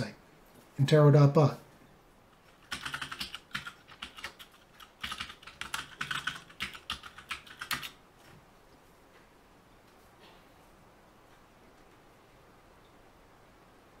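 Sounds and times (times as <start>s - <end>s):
typing on keyboard: 2.4s - 8.0s.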